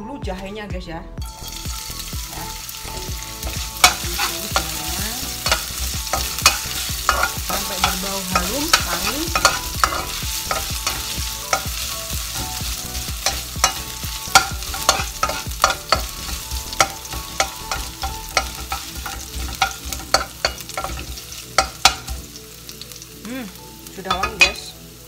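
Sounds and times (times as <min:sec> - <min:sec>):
light sizzle: 0:01.3 - 0:25.0
metal spatula scraping a wok: 0:02.7 - 0:22.3.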